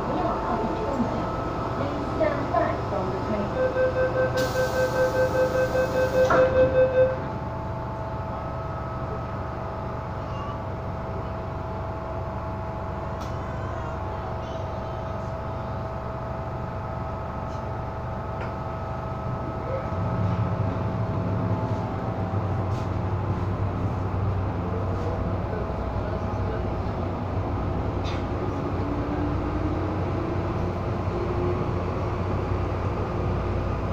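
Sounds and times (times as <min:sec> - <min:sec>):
train motors rumbling: 0:00.0 - 0:03.6, 0:07.2 - 0:33.9
pulsing door warning tone: 0:03.4 - 0:07.4
train doors shutting: 0:03.4 - 0:07.4, 0:26.2 - 0:33.9.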